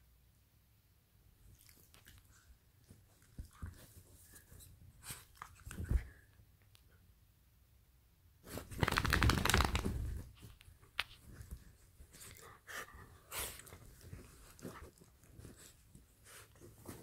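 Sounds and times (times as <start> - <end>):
bed covers rustling: 8.4 - 12.3.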